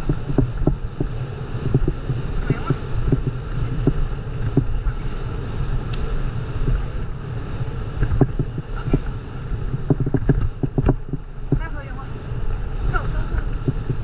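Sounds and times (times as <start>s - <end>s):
bike knocks and rattles: 0.0s - 4.9s, 8.0s - 9.0s, 9.6s - 11.7s
bicycle rumbling on rough trail: 0.0s - 14.0s
wind buffeting microphone: 0.0s - 14.0s.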